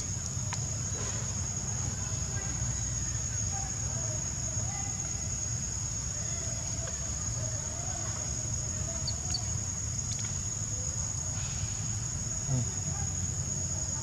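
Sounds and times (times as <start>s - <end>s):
high-pitched insect drone: 8.6s - 14.0s.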